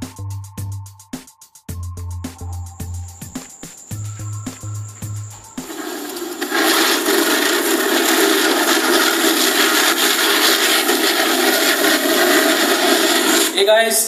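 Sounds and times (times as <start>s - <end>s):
fountain fireworks hissing: 3.3s - 14.0s.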